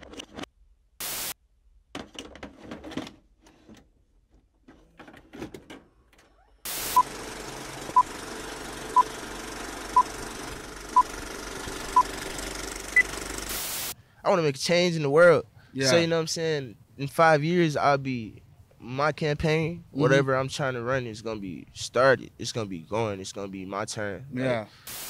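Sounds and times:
burst of static: 1.0 - 1.4, 6.7 - 7.1, 13.5 - 14.0
tape mechanism clicks and clunks: 1.9 - 13.5.

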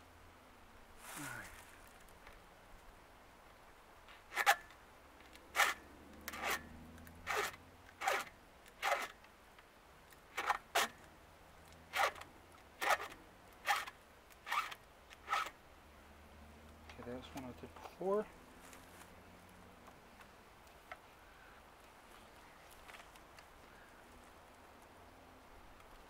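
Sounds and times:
file scraping chain teeth: 5.6 - 9.1, 12.8 - 15.6.

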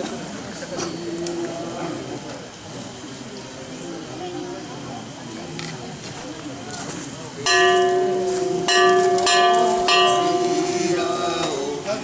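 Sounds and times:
metal gong struck ringing: 7.5 - 11.8.

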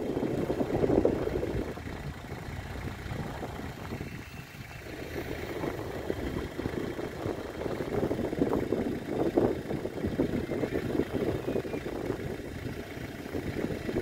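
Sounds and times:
rough vehicle engine rumble: 0.0 - 14.0.

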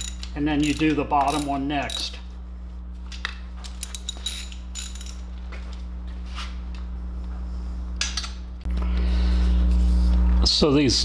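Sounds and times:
hand ratchet clicking: 0.0 - 2.2
tools being handled: 0.0 - 2.2, 3.0 - 5.8
steady low hum: 0.0 - 11.0.

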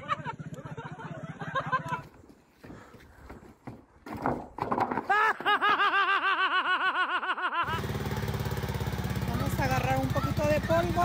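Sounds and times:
rapid high-pitched laughter: 0.0 - 2.1, 5.1 - 7.8
engine running: 7.6 - 11.0.

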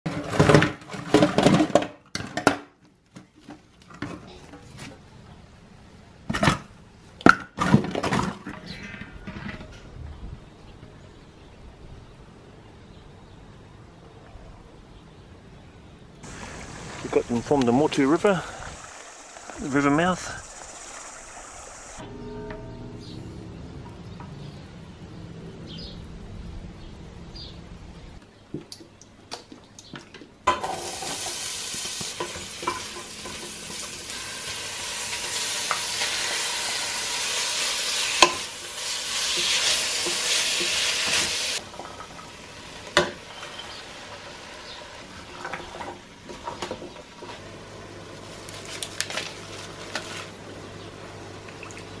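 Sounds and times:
bacon sizzling in a pot: 16.2 - 22.0, 30.6 - 45.1
pot and lid clanking: 30.5 - 36.8, 37.4 - 42.1.

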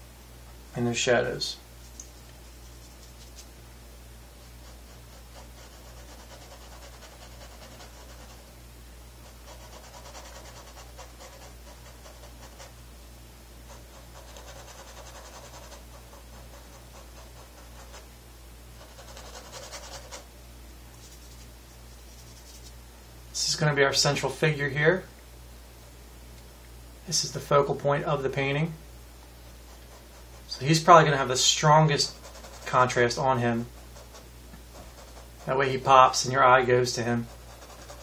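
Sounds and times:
paintbrush scratching on canvas: 1.8 - 3.5, 4.4 - 8.5, 9.2 - 12.8, 13.7 - 18.1, 18.8 - 20.3, 21.0 - 22.8, 29.5 - 38.0.

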